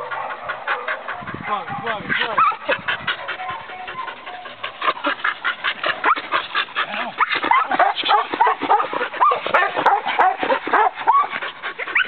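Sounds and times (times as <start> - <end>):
dog barking rapidly: 1.6 - 2.7, 7.2 - 11.3.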